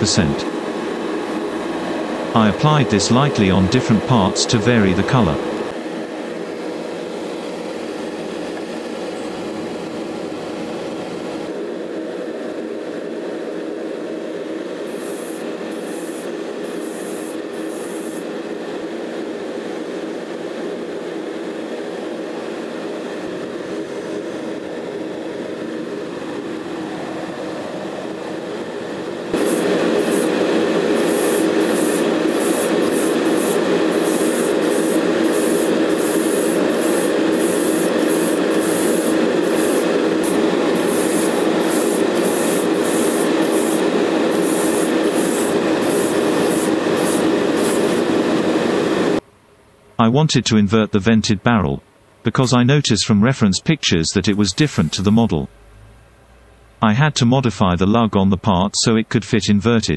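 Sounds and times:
extraction fan drone: 0:00.0 - 0:49.2, 0:53.4 - 0:57.0
air hiss bursts: 0:14.9 - 0:18.3, 0:29.4 - 0:48.1.

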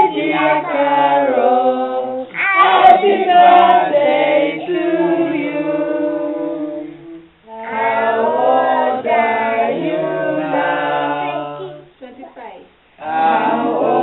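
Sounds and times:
group singing unaccompanied: 0:00.0 - 0:12.0, 0:13.0 - 0:14.0.

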